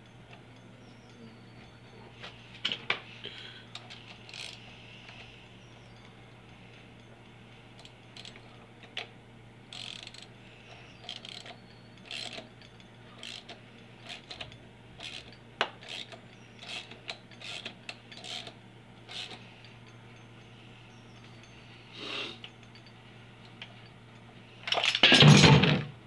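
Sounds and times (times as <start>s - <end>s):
socket ratchet clicking: 3.7s - 4.6s, 7.8s - 9.1s, 9.7s - 12.5s, 13.2s - 19.4s.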